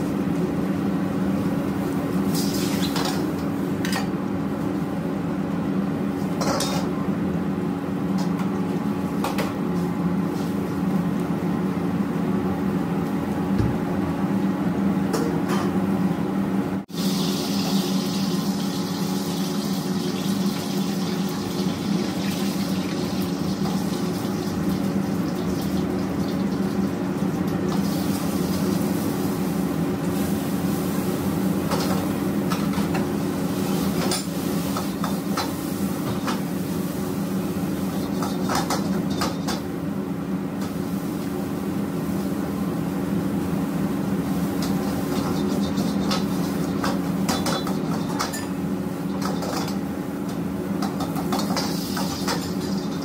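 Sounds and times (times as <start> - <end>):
gas burners droning: 0.0 - 53.0.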